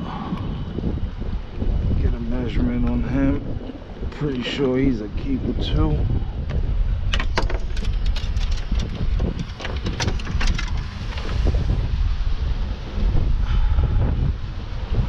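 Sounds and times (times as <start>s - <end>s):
wind rumbling on microphone: 0.0s - 15.0s
sharp clicks and knocks: 7.1s - 11.4s.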